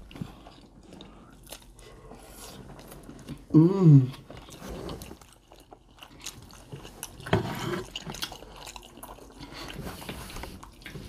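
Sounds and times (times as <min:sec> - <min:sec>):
person humming: 0:03.5 - 0:04.2
lips smacking and chewing: 0:04.2 - 0:11.0.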